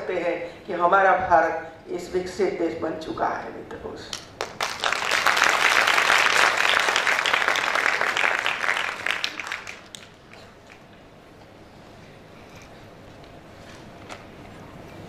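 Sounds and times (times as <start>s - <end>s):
audience applauding: 4.4s - 10.9s.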